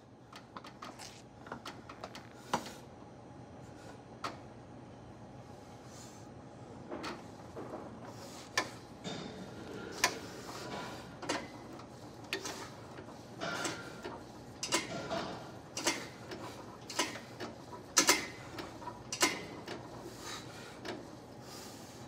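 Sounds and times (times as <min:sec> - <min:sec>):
exercise machine clicking: 0:09.8 - 0:21.0.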